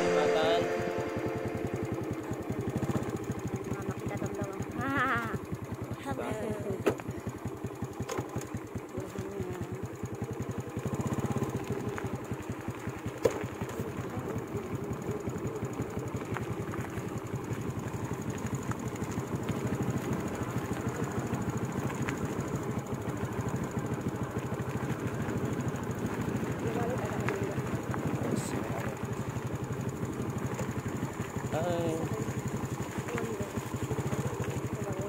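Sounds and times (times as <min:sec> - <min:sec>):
small motorcycle engine running: 0:00.0 - 0:35.0.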